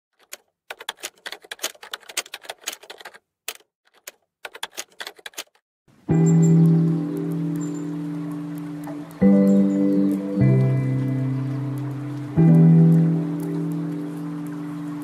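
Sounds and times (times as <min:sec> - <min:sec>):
rapid keyboard key clicks: 0:00.2 - 0:05.6.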